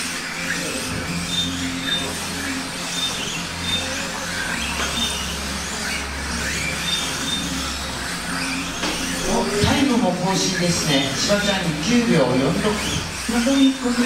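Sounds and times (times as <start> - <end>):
radio-controlled cars running: 0.0 - 14.0.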